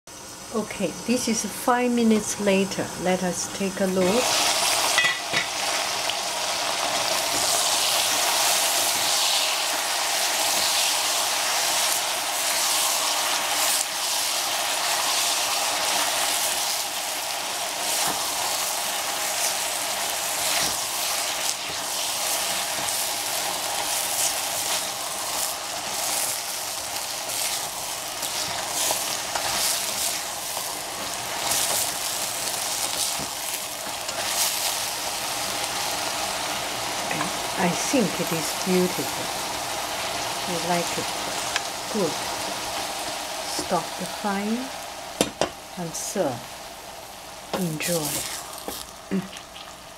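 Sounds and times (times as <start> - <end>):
vegetables sizzling in a pan: 0.1 - 49.9.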